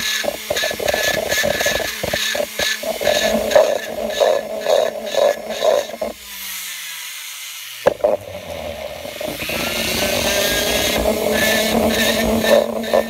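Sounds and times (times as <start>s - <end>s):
rotary tool grinding metal: 0.0s - 13.0s.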